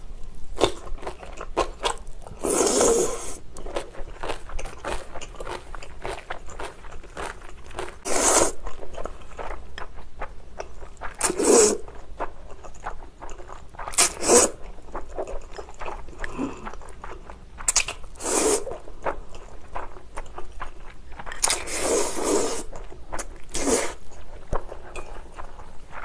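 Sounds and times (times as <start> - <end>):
wet chewing: 0.6 - 26.0
noodle slurping: 2.4 - 3.4, 8.0 - 8.7, 11.0 - 11.9, 13.8 - 14.7, 17.6 - 18.8, 21.4 - 24.1.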